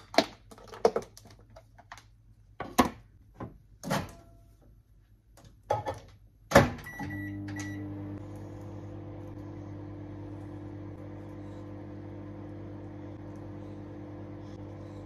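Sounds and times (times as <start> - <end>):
microwave oven humming: 6.5 - 15.0.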